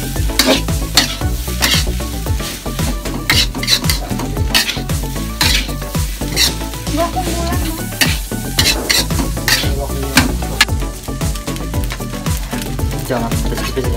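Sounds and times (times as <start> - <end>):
rice sizzling: 0.0 - 13.9
metal spatula scraping wok: 0.2 - 10.7.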